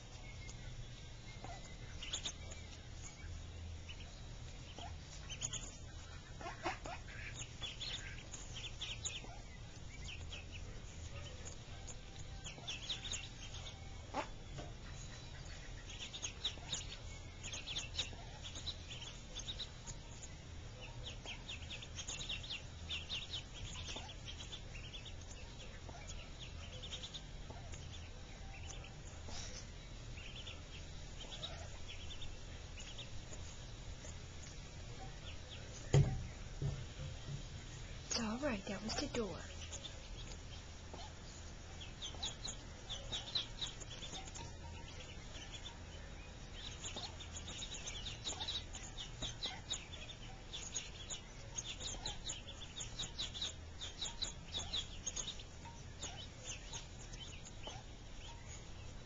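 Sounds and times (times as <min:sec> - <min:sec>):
ducklings peeping: 0:00.0 - 0:59.0
steady low hum: 0:00.0 - 0:59.0.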